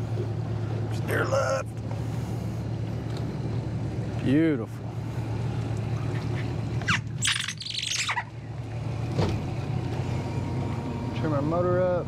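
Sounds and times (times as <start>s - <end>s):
outboard motor idling: 0.0s - 7.2s
birds chirping: 6.0s - 8.6s.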